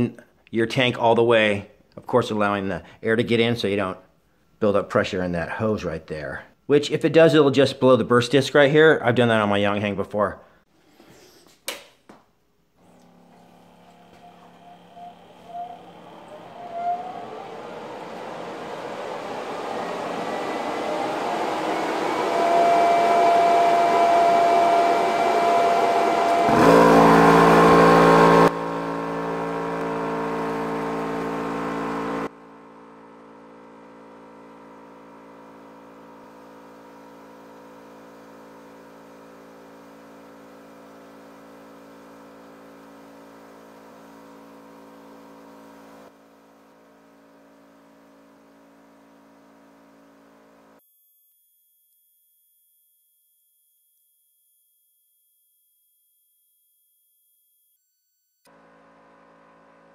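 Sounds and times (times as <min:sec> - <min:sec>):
air compressor running: 0:12.8 - 0:50.7
steady multi-tone hum: 0:12.9 - 0:28.6.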